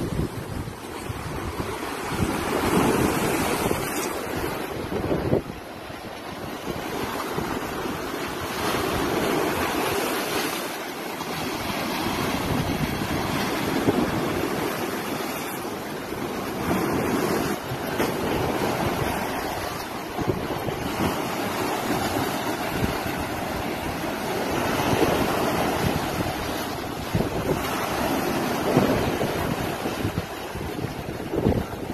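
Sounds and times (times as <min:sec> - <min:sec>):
sea waves breaking on rocks: 0:00.0 - 0:31.9.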